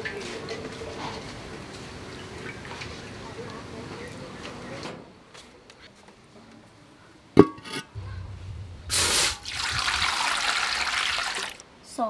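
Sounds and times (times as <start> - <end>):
water pouring into wok: 8.9 - 11.6.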